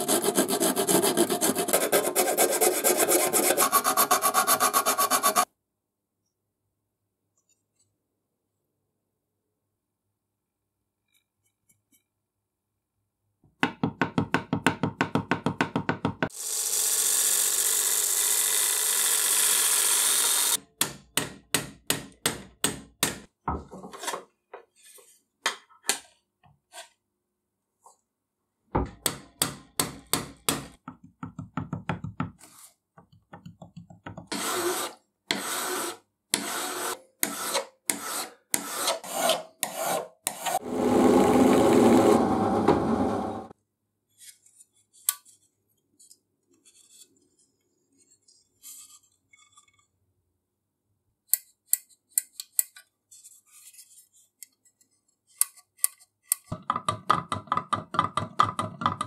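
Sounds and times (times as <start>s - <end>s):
file rasping on sheet metal: 0.0s - 5.5s, 34.3s - 42.2s.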